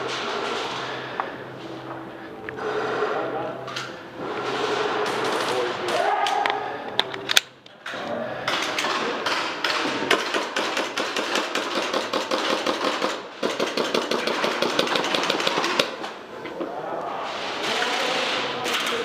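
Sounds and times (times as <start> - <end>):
airsoft guns firing full auto: 8.5 - 16.0.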